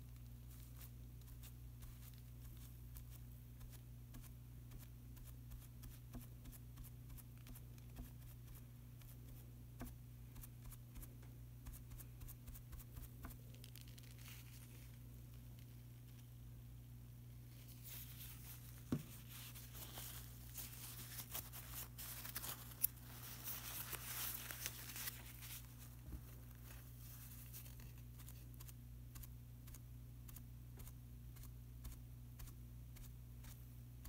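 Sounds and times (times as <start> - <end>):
low steady hum: 0.0 - 34.0
scratching and rustling: 13.2 - 16.3, 17.5 - 28.7.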